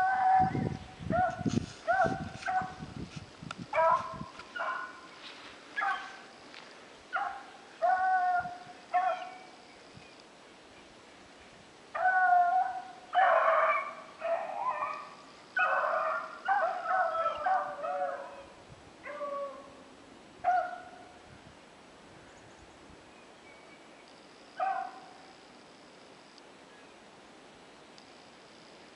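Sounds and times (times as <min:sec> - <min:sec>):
hounds baying: 0:03.7 - 0:05.1, 0:05.8 - 0:06.3, 0:07.1 - 0:09.5, 0:11.9 - 0:19.7.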